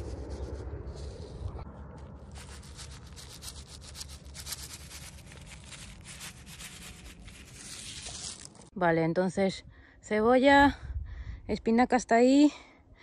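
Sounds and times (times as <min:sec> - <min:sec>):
low steady rumble: 0:00.0 - 0:08.7
seed packet rustling and pattering: 0:02.2 - 0:08.7.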